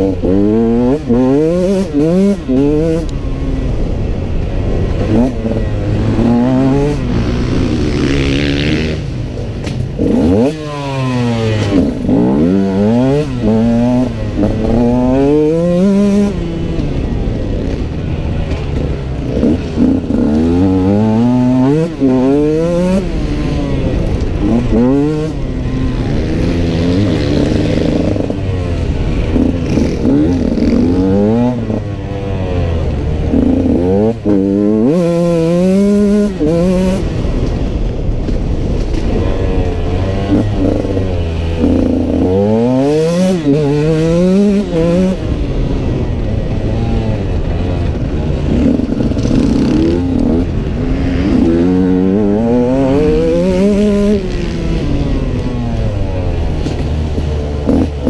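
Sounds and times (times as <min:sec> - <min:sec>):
two-stroke engine revving hard: 0:10.0 - 0:16.8, 0:19.2 - 0:28.4, 0:39.0 - 0:45.5, 0:46.6 - 0:55.6, 0:57.6 - 0:58.0.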